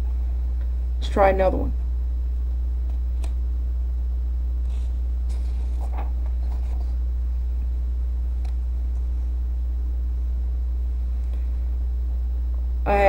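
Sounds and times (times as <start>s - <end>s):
low background hum: 0.0s - 13.0s
paper sheet rustling: 4.7s - 7.0s.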